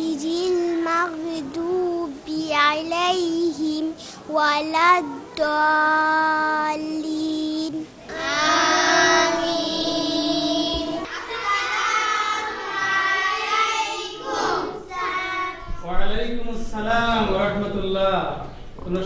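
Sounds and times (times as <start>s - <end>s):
girl singing alone: 0.0s - 14.0s
group of girls singing: 8.0s - 15.7s.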